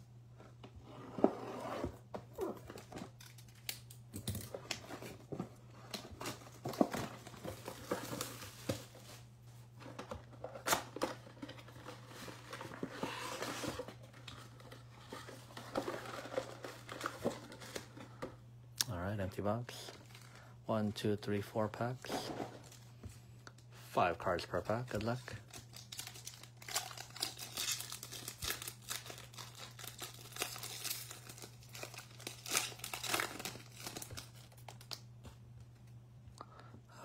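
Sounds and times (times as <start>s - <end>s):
plastic wrap crinkling and tearing: 24.8s - 35.0s.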